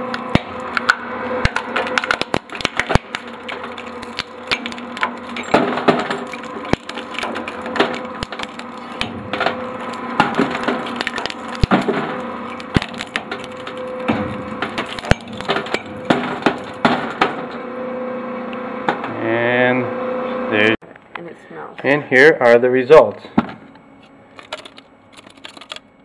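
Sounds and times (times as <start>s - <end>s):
metal cracking and snapping: 0.0s - 17.6s, 24.4s - 25.8s
shredder motor hum: 0.0s - 20.8s.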